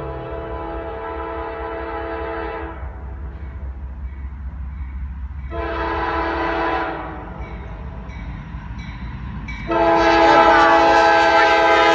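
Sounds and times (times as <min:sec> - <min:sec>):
locomotive air horn chord: 0:00.0 - 0:03.0, 0:05.5 - 0:07.4, 0:09.7 - 0:11.9
train rumble: 0:00.0 - 0:11.9.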